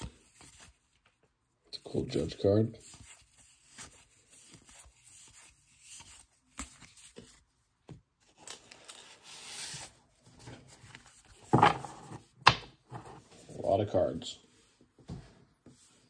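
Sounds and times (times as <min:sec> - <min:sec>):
cards rustling and sliding: 0:02.1 - 0:13.8.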